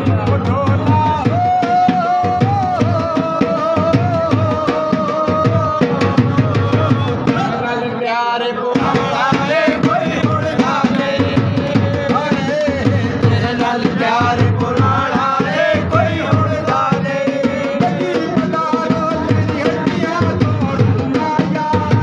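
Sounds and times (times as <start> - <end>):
hand drum rhythm: 0.0 - 7.6, 8.7 - 22.0.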